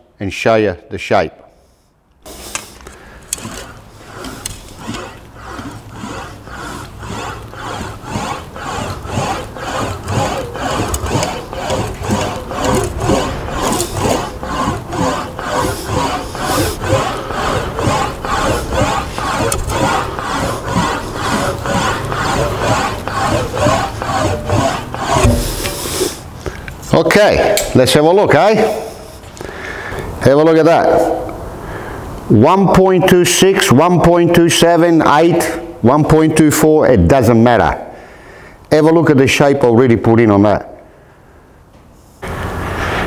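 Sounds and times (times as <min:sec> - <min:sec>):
english wheel rolling metal panel: 0:03.4 - 0:26.1.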